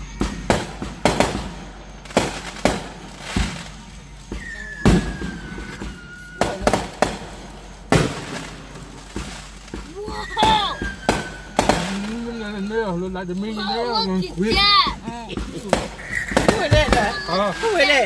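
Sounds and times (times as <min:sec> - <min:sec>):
firework whistle: 0:00.0 - 0:14.7, 0:15.7 - 0:18.0
firework bangs: 0:00.0 - 0:18.0.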